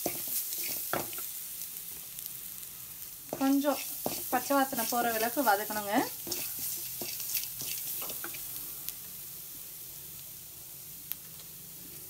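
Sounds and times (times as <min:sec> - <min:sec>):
spices sizzling in hot oil: 0:00.0 - 0:12.0.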